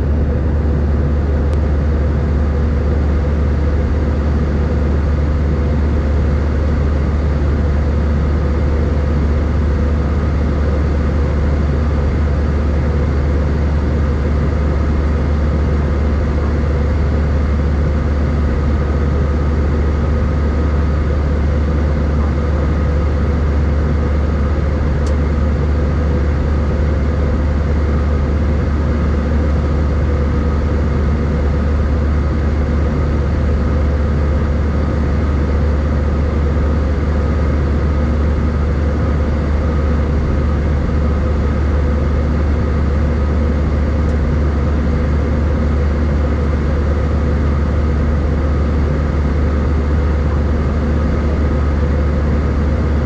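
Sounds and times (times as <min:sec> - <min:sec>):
airplane cabin engine drone: 0:00.0 - 0:53.0.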